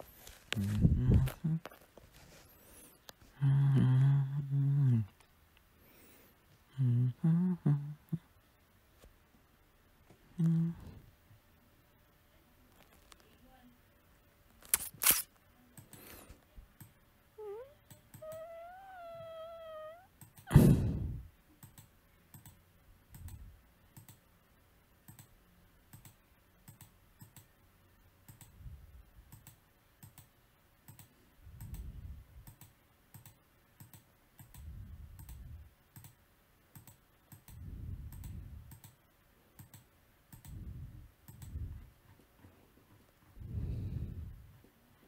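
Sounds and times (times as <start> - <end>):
person humming: 0.6 - 1.7, 3.3 - 5.2, 6.7 - 8.3, 10.3 - 11.0, 17.4 - 21.1
computer mouse clicking: 15.8 - 16.1, 16.8 - 17.0, 20.2 - 20.4, 21.6 - 24.2, 25.0 - 27.5, 28.2 - 28.6, 29.3 - 39.0, 39.6 - 40.6, 41.2 - 41.6.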